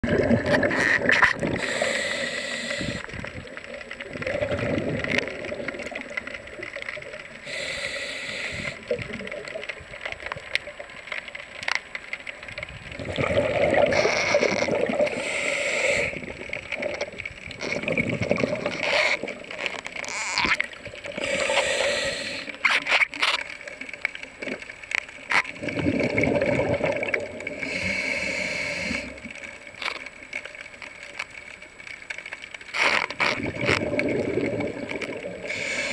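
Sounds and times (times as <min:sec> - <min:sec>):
bubbles gurgling underwater: 0:00.0 - 0:01.8, 0:02.8 - 0:07.5, 0:12.6 - 0:15.2, 0:16.1 - 0:19.6, 0:25.5 - 0:27.9, 0:33.1 - 0:35.9
diver breathing through regulator: 0:01.5 - 0:03.2, 0:07.4 - 0:08.9, 0:14.9 - 0:16.3, 0:21.2 - 0:22.7, 0:27.6 - 0:29.2, 0:35.4 - 0:35.9.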